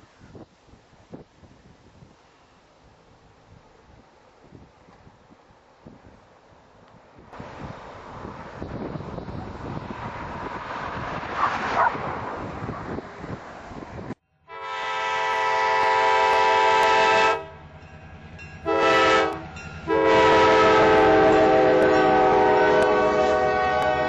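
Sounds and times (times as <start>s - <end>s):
distant freight train rumble: 2.2s - 24.0s
wind buffeting microphone: 2.9s - 14.2s
locomotive air horn blasts: 14.4s - 17.7s, 18.6s - 24.0s.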